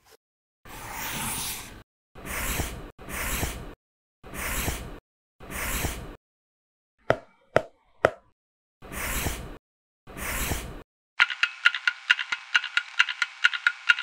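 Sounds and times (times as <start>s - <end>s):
sharp clicks: 11.2s - 14.0s.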